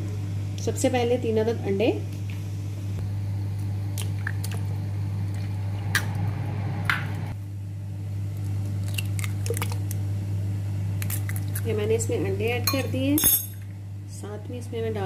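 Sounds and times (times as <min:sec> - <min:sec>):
steady low hum: 0:00.0 - 0:15.0
egg squishing into jug: 0:03.9 - 0:06.2, 0:08.3 - 0:10.1, 0:10.9 - 0:11.7
eggshells cracking: 0:08.4 - 0:10.0, 0:11.0 - 0:11.7.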